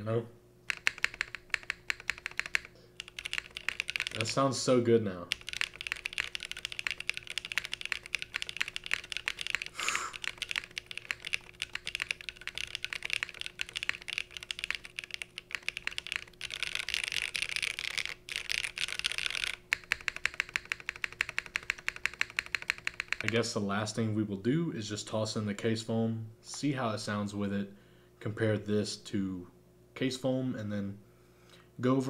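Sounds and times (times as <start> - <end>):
mechanical keyboard key clacks: 0.7 - 4.4, 5.3 - 23.4.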